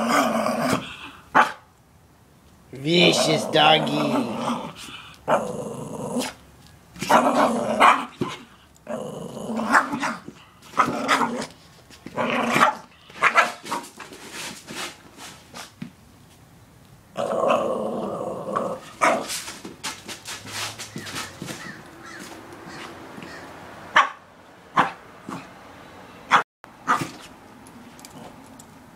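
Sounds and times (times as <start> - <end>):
small dog growling and snarling: 0.0 - 1.2, 2.9 - 6.4, 7.0 - 12.9, 17.1 - 19.4.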